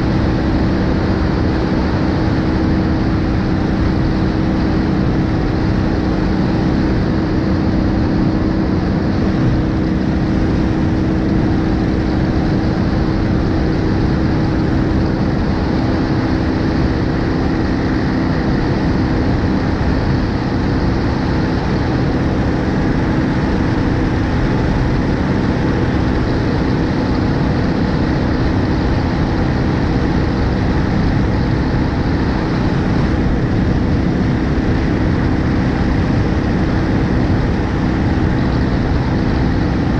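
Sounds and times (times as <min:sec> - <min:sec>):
motorcycle engine cruising: 0:00.0 - 0:39.9
wind rush: 0:00.0 - 0:39.9.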